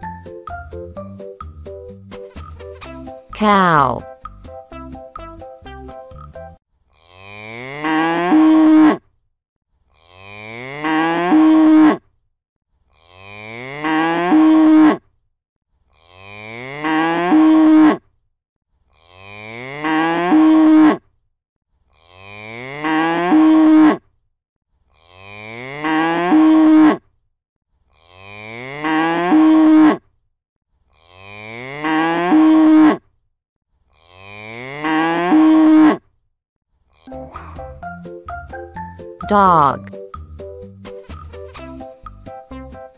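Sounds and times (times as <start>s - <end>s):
cow mooing: 7.1s - 9.0s, 10.1s - 12.0s, 13.1s - 15.0s, 16.2s - 18.0s, 19.2s - 21.0s, 22.2s - 24.0s, 25.2s - 27.0s, 28.1s - 30.0s, 31.2s - 33.0s, 34.1s - 36.0s.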